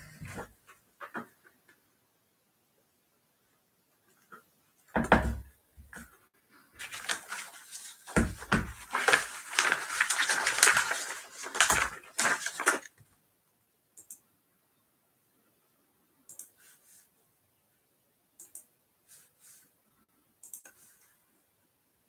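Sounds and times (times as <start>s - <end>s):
rustling and clattering: 6.8s - 12.9s.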